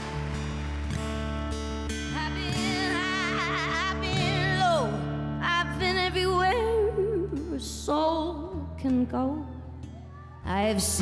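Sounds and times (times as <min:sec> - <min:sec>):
woman singing with vibrato: 0:02.1 - 0:09.7, 0:10.4 - 0:11.0.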